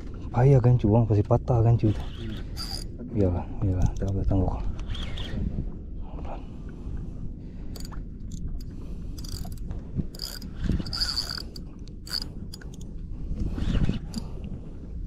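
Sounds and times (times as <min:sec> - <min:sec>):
steady low rumble: 0:00.0 - 0:15.0
fishing reel ratcheting: 0:02.2 - 0:02.9, 0:07.7 - 0:12.8.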